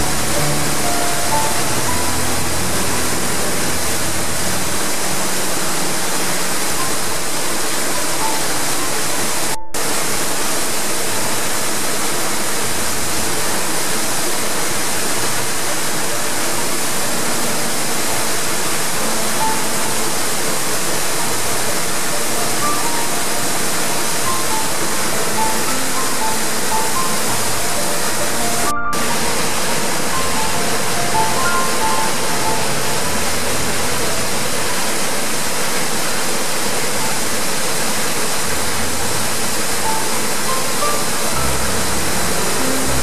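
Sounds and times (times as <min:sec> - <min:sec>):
waterfall splashing into pool: 0:00.0 - 0:43.0.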